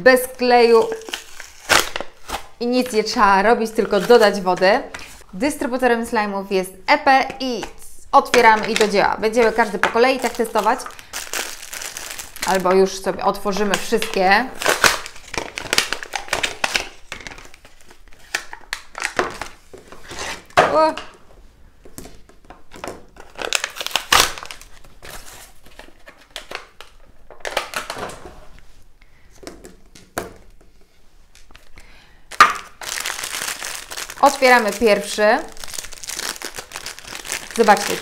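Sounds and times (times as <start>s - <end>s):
plastic packaging crinkling: 0.6s - 5.2s, 8.4s - 19.6s, 23.1s - 28.0s, 32.3s - 38.0s.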